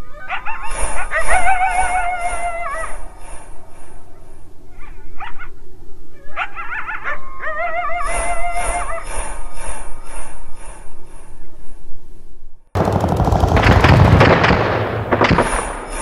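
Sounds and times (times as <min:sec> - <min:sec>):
whimpering whine: 0:07.4 - 0:10.0
deep rumble: 0:12.8 - 0:16.0
rapid cracks like gunfire: 0:12.8 - 0:16.0.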